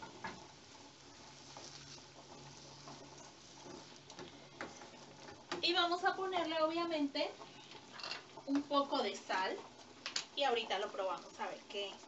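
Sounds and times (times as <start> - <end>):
wooden spoon knocking on pan: 0.0 - 0.5, 2.8 - 6.2
vegetables frying in a pan: 0.0 - 12.0.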